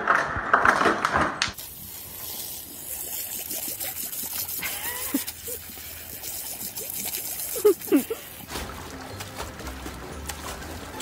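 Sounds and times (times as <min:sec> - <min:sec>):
hose spraying water onto grass: 0:01.6 - 0:08.8.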